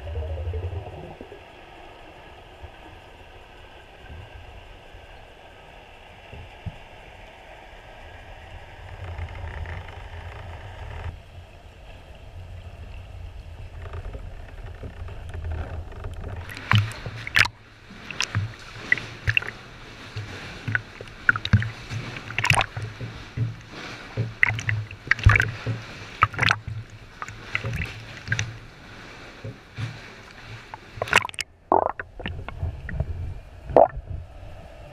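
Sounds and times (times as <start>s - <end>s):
muffled underwater rumble: 0.0s - 34.9s
water splashing against camera: 16.0s - 34.1s.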